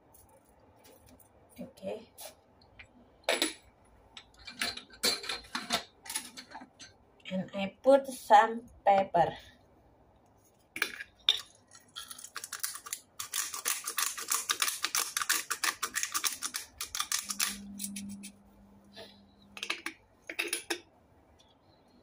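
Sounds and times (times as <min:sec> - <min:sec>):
pepper grinder clicking: 0:12.0 - 0:18.2.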